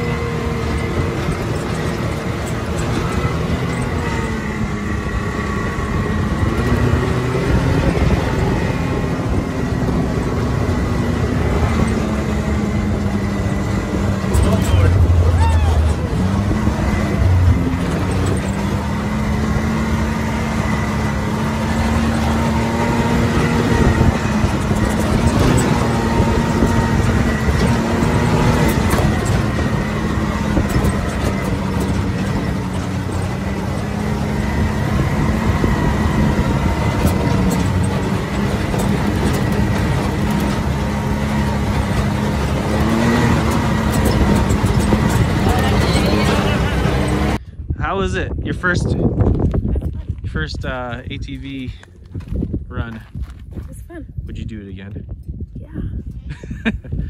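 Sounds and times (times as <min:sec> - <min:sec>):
tyres on gravel: 0:00.0 - 0:47.4, 0:49.2 - 0:54.9
atv engine running: 0:00.0 - 0:57.0.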